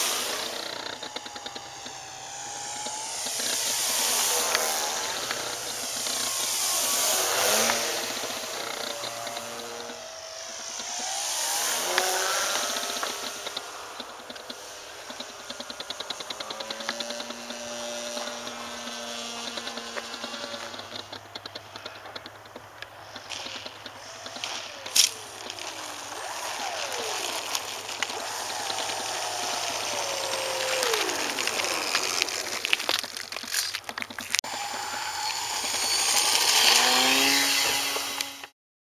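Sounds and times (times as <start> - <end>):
model airplane motor: 0.0 - 38.5
rushing noise: 22.9 - 33.6.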